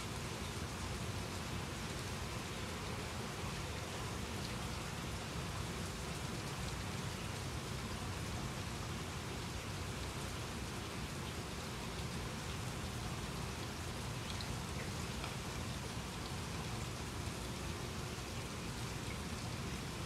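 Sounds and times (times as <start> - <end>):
rain falling: 0.0 - 20.0
faint drip ticks: 10.3 - 20.0.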